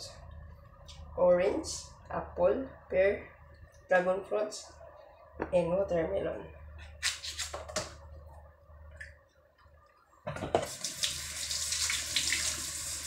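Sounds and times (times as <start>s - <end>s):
tap water running into sink: 10.5s - 13.0s.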